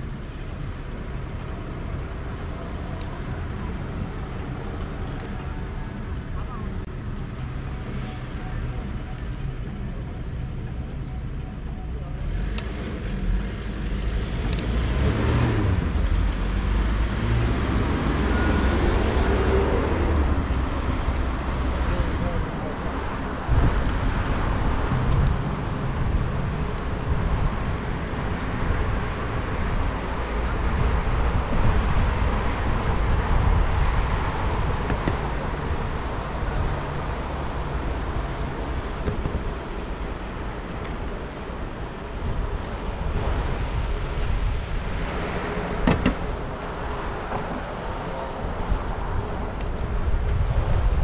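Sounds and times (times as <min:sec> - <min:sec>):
city road traffic: 0:00.0 - 0:51.0
wind on microphone: 0:14.4 - 0:51.0.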